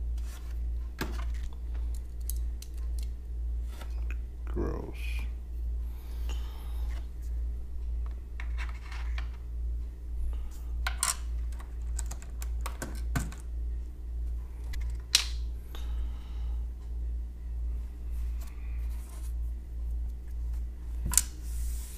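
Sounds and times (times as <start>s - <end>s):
low hum: 0.0s - 21.9s
keyboard clicks and scrapes: 11.5s - 13.4s.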